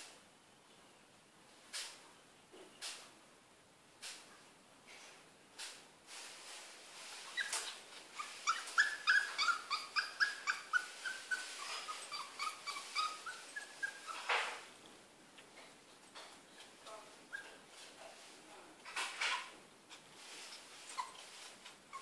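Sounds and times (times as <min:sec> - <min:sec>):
dog whimpering: 0:07.3 - 0:14.4, 0:16.5 - 0:17.6, 0:19.3 - 0:22.0.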